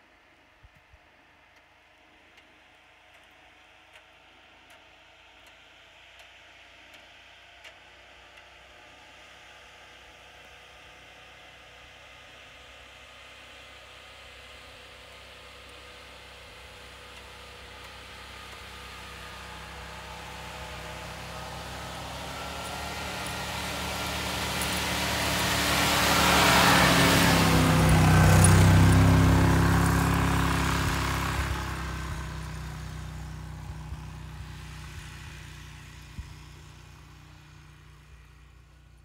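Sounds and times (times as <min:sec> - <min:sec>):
truck engine running: 0:16.0 - 0:39.0.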